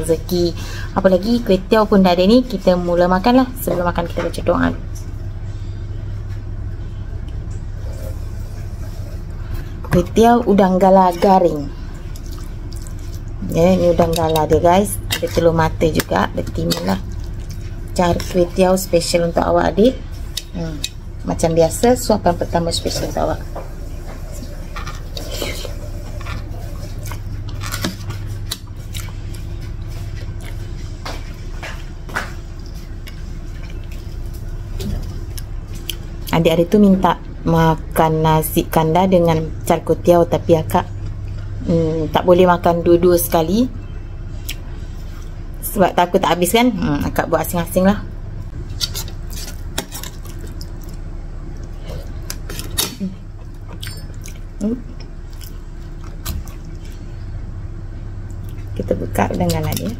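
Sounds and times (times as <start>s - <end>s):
steady low hum: 0.0s - 59.9s
chewing noodles: 11.1s - 18.8s, 23.8s - 36.4s, 48.6s - 57.3s.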